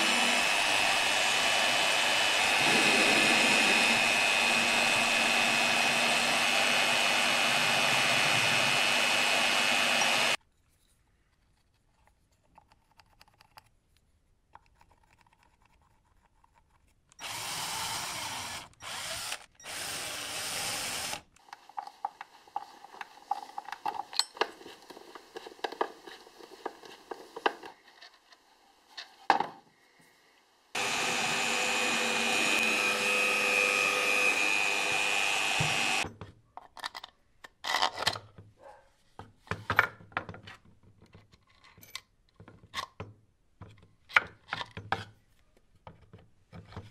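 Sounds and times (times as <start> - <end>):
power drill running: 0.0 - 10.4, 17.2 - 21.2, 30.8 - 36.0.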